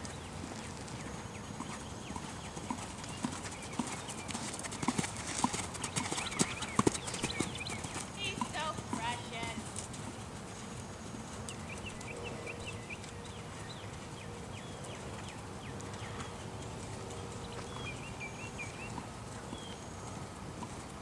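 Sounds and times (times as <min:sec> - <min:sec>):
birds chirping: 0:00.0 - 0:21.0
hoofbeats on sand: 0:00.0 - 0:21.0.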